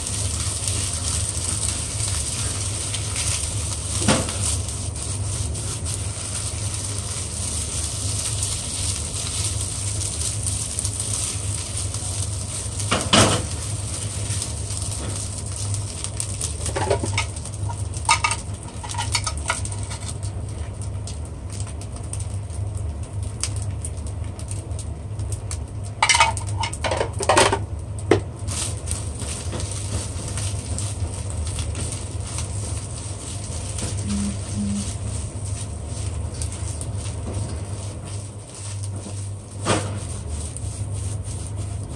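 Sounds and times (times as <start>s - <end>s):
rice sizzling in a frying pan: 0.0s - 41.9s
steady low hum: 24.7s - 41.9s
spatula scraping a pan: 31.7s - 41.9s.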